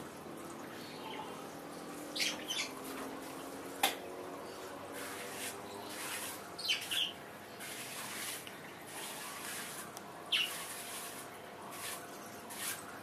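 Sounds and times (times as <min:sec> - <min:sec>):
trowel scraping wet mortar: 0:07.6 - 0:12.9.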